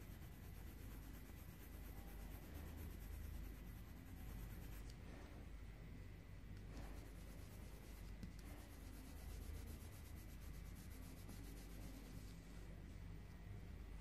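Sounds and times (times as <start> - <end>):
pencil scratching on paper: 0.0 - 5.2, 6.7 - 12.4.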